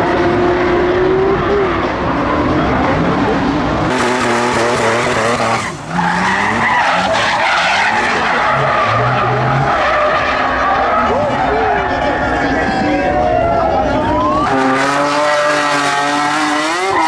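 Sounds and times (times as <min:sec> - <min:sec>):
car engines revving: 0:00.0 - 0:17.0
tyres screeching: 0:03.9 - 0:13.2.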